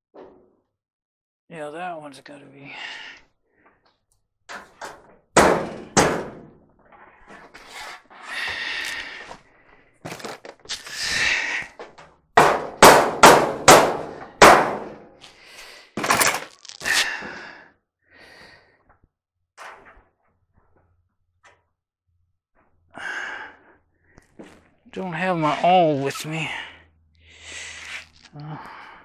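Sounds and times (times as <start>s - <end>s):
sheet metal knocks and clangs: 4.5s - 6.6s.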